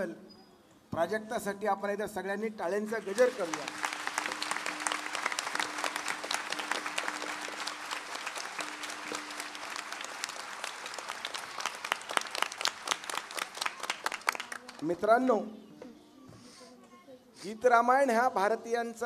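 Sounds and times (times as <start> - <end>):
audience applauding: 3.0 - 14.9.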